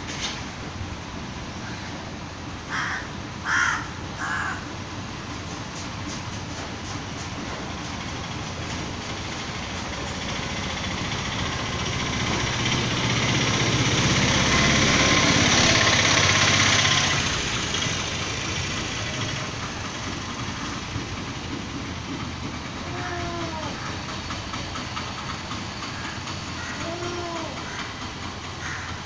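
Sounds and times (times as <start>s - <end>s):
vehicle engine passing by: 8.8s - 20.9s.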